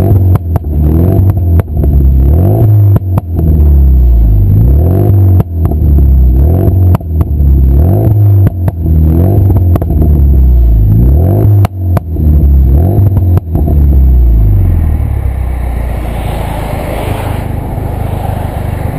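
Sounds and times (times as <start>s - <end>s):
exhaust pops and bangs: 0.0s - 2.2s, 2.8s - 3.7s, 5.0s - 10.2s, 11.5s - 14.1s
car engine revving: 0.0s - 18.9s.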